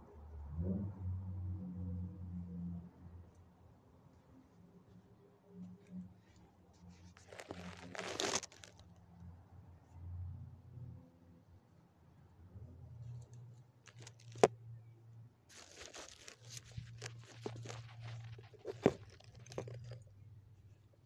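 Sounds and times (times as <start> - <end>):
close rustling and crinkling: 5.7 - 9.0, 13.1 - 14.5, 15.5 - 20.8.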